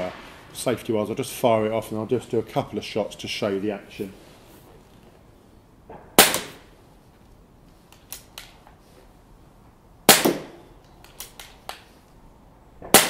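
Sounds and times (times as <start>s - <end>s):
air rifle shot: 0.0s - 0.8s, 5.9s - 6.7s, 10.1s - 10.7s, 12.8s - 13.0s
air rifle lever clicks: 7.9s - 8.8s, 10.8s - 11.9s.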